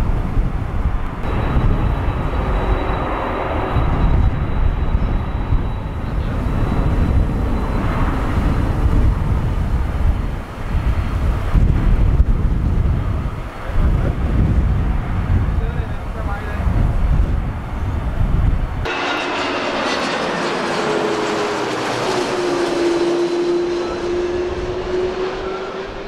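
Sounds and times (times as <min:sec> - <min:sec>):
jet engines rushing rumble: 0:00.0 - 0:26.0.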